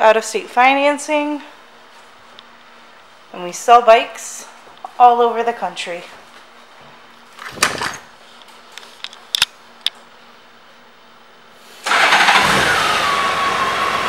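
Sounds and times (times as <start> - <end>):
motorcycle engine starting and idling: 11.8 - 14.0.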